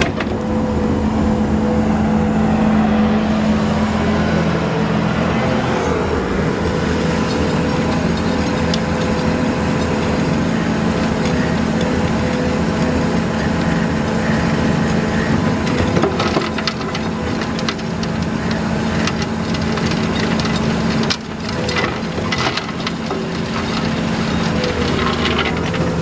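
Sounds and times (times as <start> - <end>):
excavator diesel engine running: 0.0 - 26.0
hydraulic screening bucket turning: 6.5 - 26.0
stones rattling in bucket: 7.4 - 14.1, 15.7 - 26.0.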